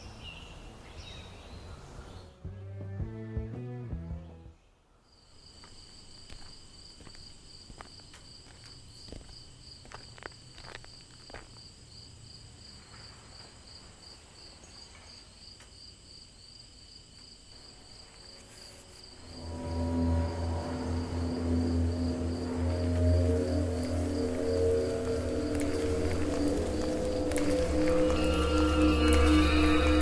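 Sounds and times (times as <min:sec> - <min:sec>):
music: 0:02.3 - 0:04.6, 0:18.6 - 0:30.0
insect trilling: 0:18.4 - 0:30.0
footsteps on leaf litter: 0:25.1 - 0:29.9.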